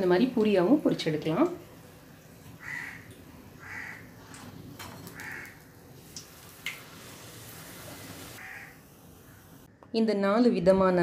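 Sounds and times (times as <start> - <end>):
crow cawing: 2.6 - 4.1, 5.1 - 5.7, 8.4 - 9.4
bread sizzling in hot oil: 3.3 - 9.6.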